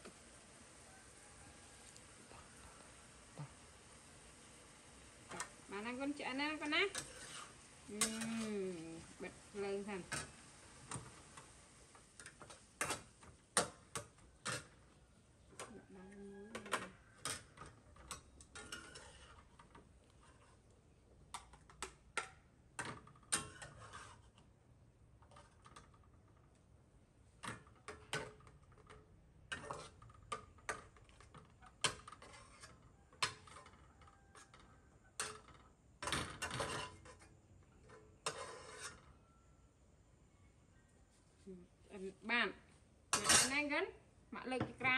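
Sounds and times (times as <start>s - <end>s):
metal spatula scraping wok: 5.3s - 14.9s, 16.6s - 20.7s, 23.0s - 24.5s, 29.5s - 39.5s, 43.1s - 43.7s.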